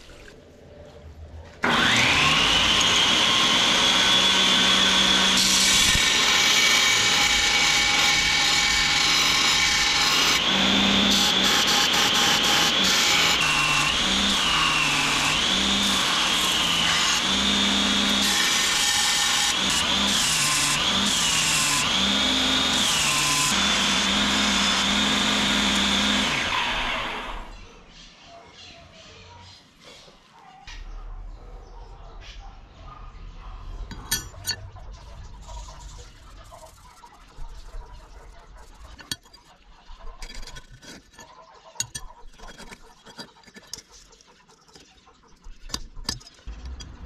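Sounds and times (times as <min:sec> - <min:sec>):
belt grinder grinding steel: 0:01.6 - 0:27.5.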